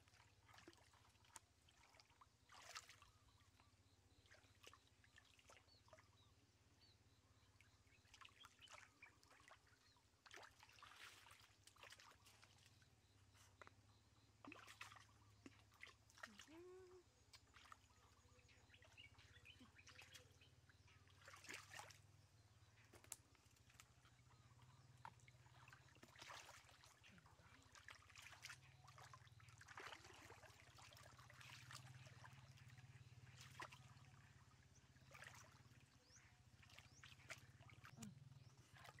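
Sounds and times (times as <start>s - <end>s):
hands splashing in muddy water: 8.2s - 12.8s, 14.4s - 18.0s, 21.1s - 22.0s, 24.9s - 32.6s.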